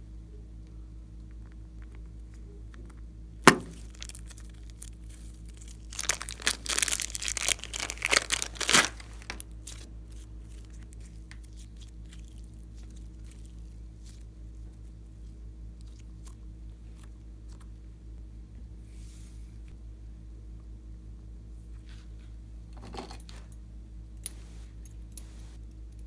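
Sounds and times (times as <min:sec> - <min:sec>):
plastic crinkling and tearing: 0:03.5 - 0:15.0.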